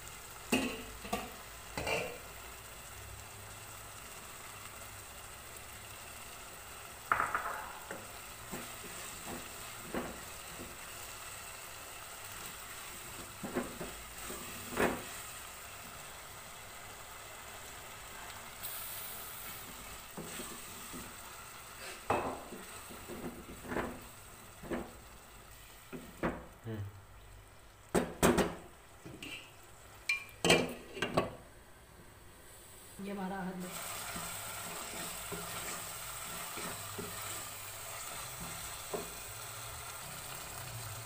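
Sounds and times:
food sizzling in a pan: 0.0s - 41.0s
wooden spatula scraping a pan: 13.0s - 15.3s, 19.6s - 21.2s, 33.7s - 39.2s.

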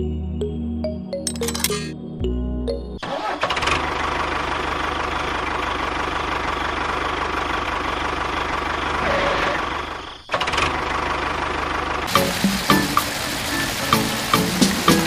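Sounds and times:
tractor engine idling: 3.1s - 9.0s, 9.6s - 15.0s.

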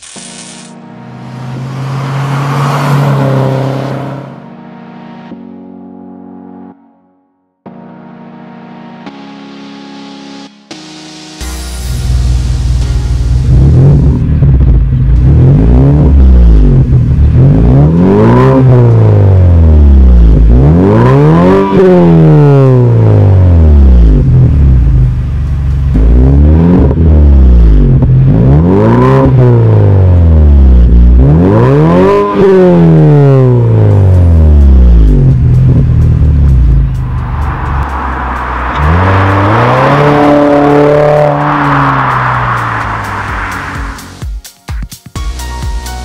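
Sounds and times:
car engine revving: 1.2s - 4.5s, 12.0s - 44.2s.

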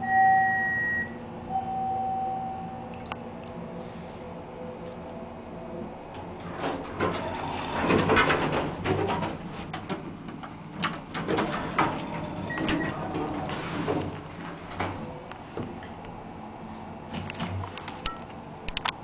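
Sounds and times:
steady low hum: 0.0s - 19.0s
elevator doors rattling open: 5.9s - 16.0s.

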